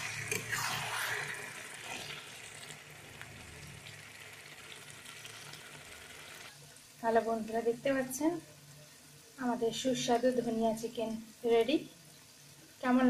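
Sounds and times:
spatula scraping: 0.0s - 2.7s
curry sizzling: 0.0s - 13.0s.

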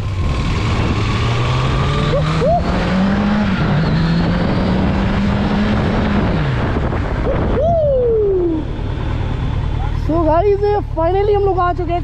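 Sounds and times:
wind noise on microphone: 0.0s - 8.8s
motorcycle engine accelerating: 0.0s - 12.0s.

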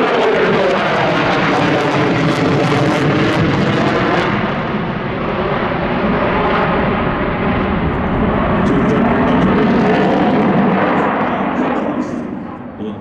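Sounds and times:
jet engine roar: 0.0s - 13.0s
jet exhaust crackling: 0.0s - 13.0s.

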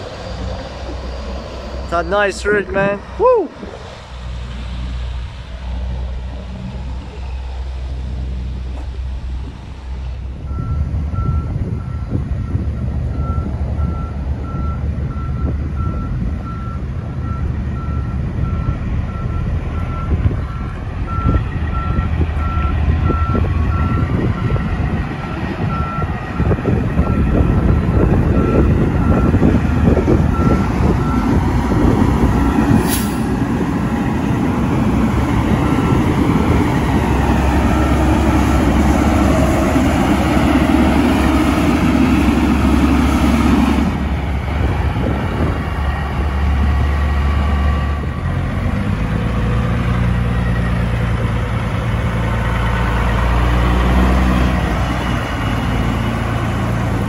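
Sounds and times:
diesel truck engine running: 0.0s - 57.0s
reversing alarm beeping: 10.4s - 24.6s, 25.2s - 32.8s, 35.5s - 36.0s, 37.5s - 39.2s.

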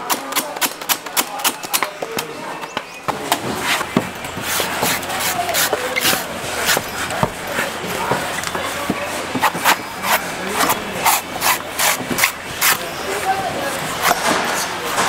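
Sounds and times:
knife chopping coconut: 8.8s - 12.8s.

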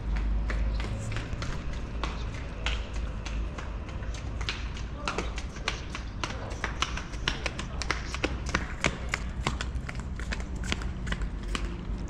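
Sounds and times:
low rumble: 0.0s - 4.4s.

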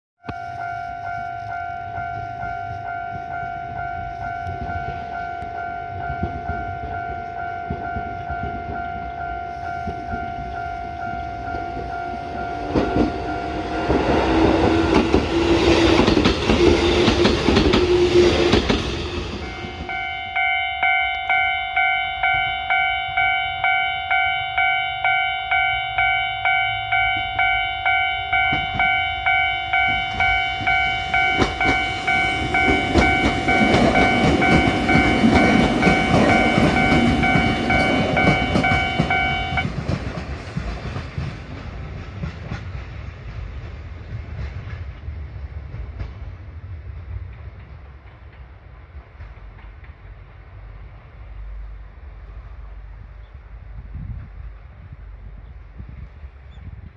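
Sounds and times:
level crossing alarm ringing: 0.2s - 15.8s, 19.2s - 39.7s
train rumbling past: 0.2s - 56.9s
train wheels clacking on rails: 2.0s - 50.9s.

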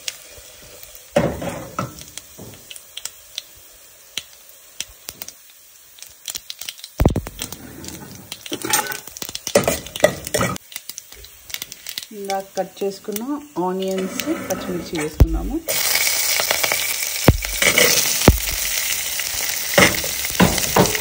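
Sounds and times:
seeds popping in hot oil: 0.0s - 14.3s, 15.0s - 21.0s
heavy knocks on pot: 19.8s - 21.0s.

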